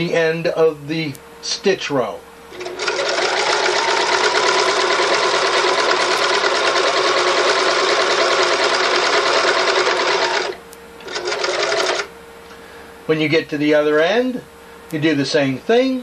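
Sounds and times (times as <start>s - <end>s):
sewing machine stitching: 2.5s - 12.1s.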